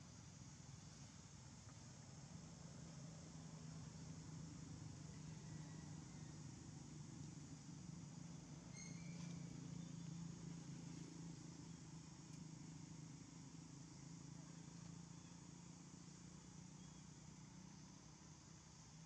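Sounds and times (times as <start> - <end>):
steady low hum: 0.0 - 19.0
faint high-pitched chirp: 8.7 - 10.3, 16.7 - 17.2.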